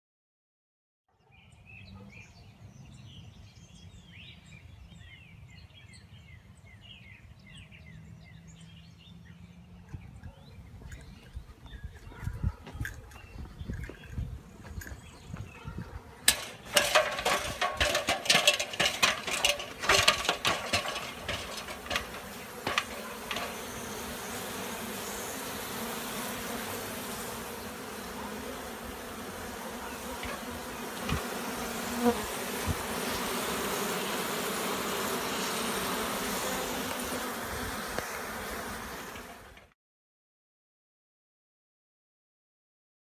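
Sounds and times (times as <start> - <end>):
honey bees buzzing: 16.0 - 39.6
metal ladder knocking and clanking: 16.3 - 23.6.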